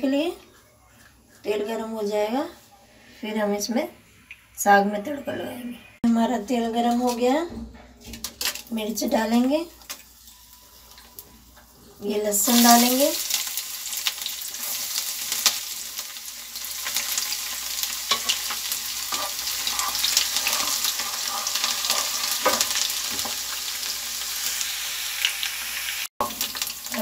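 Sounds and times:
garlic sizzling in hot oil: 9.8s - 27.0s.

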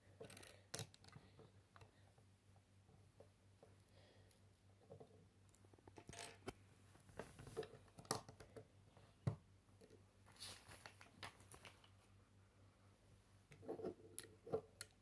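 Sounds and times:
paper pages turning: 10.3s - 11.9s.

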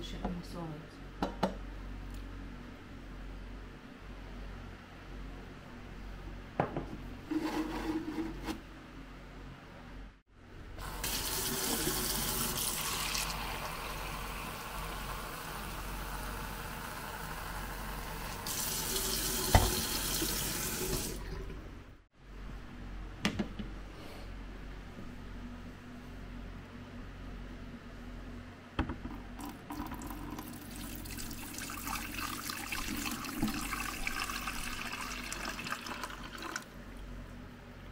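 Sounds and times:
water running from a tap: 10.8s - 21.5s, 29.7s - 36.6s.

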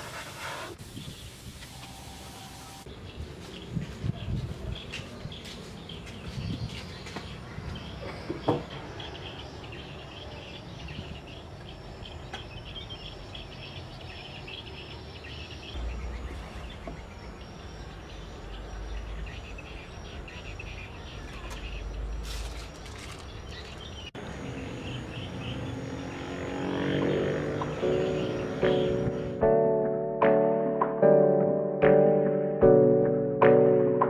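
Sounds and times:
birds chirping: 0.9s - 29.4s
insects chirping: 7.3s - 29.4s.

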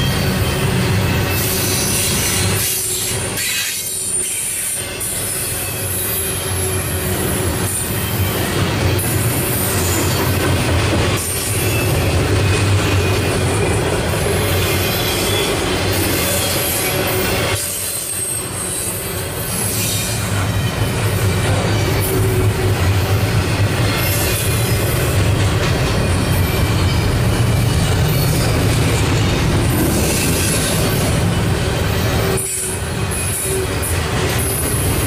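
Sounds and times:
high-pitched wheel squeals: 0.0s - 10.4s, 11.2s - 25.2s
freight train wheels rumbling: 0.0s - 35.0s.

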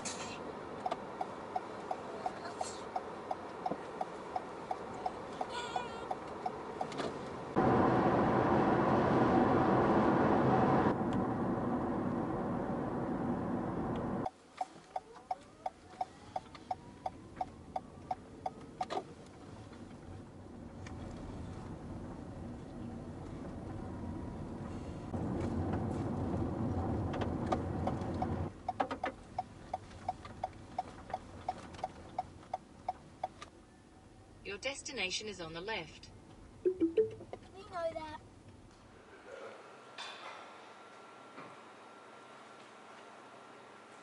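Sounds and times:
road and wind noise: 0.0s - 39.1s
car turn signal ticking: 0.8s - 7.0s, 14.2s - 18.9s, 27.8s - 33.4s.

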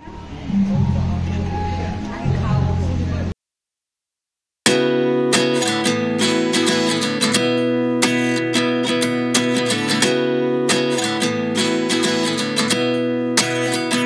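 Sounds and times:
guitar strumming: 4.7s - 14.0s.

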